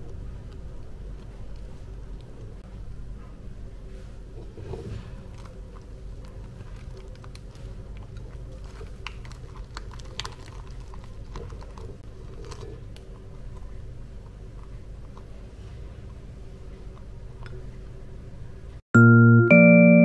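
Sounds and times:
hands rolling rice paper: 0:03.8 - 0:17.2.

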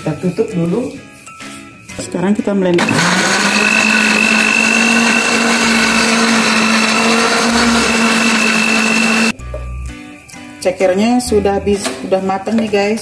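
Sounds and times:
blender motor hum and whine: 0:02.8 - 0:09.3.

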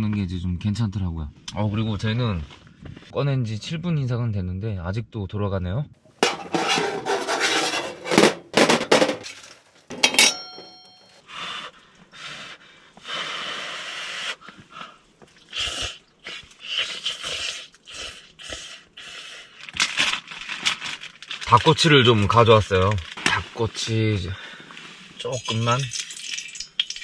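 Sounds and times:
metal poker scraping on stove: 0:06.2 - 0:11.0
ringing metal clink: 0:10.0 - 0:11.2.

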